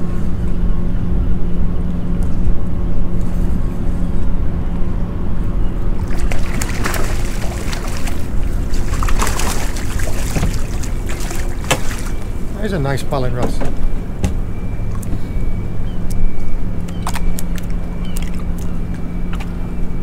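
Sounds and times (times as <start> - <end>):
low rumble: 0.0 - 20.0
fish splashing: 6.0 - 12.5.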